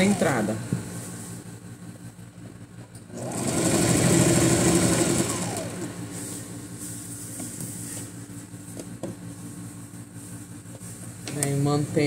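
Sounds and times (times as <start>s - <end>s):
sewing machine stitching: 0.0s - 0.6s, 3.1s - 5.9s
motor winding down: 0.0s - 0.8s, 3.1s - 6.2s.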